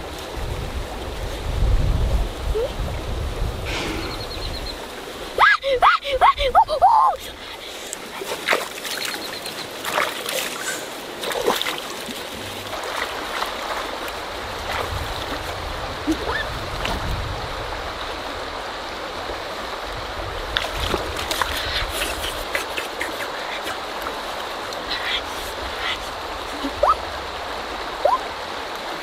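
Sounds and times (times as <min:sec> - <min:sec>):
river water rushing over rocks: 0:02.2 - 0:29.0
person wading splashes: 0:05.4 - 0:17.0, 0:20.5 - 0:27.1.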